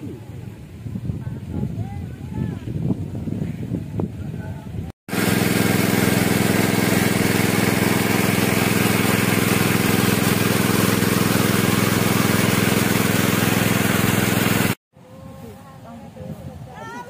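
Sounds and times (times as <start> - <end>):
small engine running: 5.1 - 14.8
water gushing and splashing: 5.1 - 14.8.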